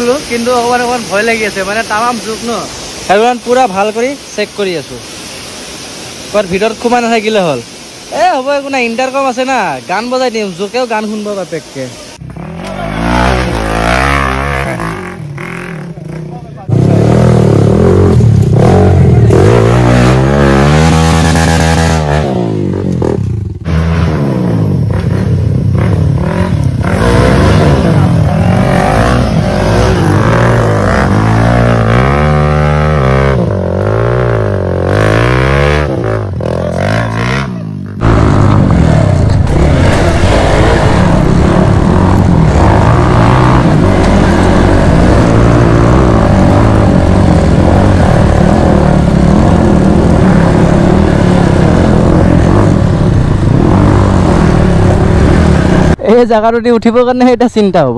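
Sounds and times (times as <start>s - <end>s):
motorcycle engine revving: 12.2s - 56.0s
rushing noise: 16.7s - 56.1s.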